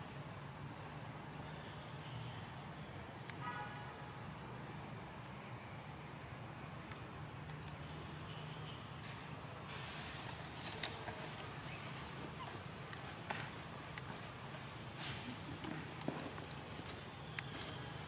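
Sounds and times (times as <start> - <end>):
sharp clicks: 6.1 - 8.0.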